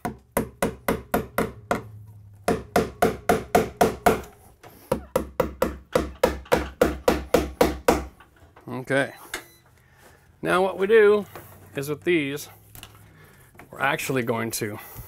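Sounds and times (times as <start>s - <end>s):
hammer striking staples into wood: 0.0s - 1.9s, 2.5s - 4.3s, 4.9s - 8.2s.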